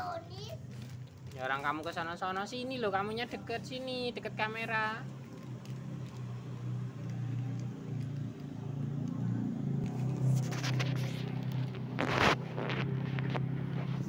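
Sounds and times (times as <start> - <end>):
low engine hum: 5.0 - 14.0
brief rustle: 9.8 - 14.0.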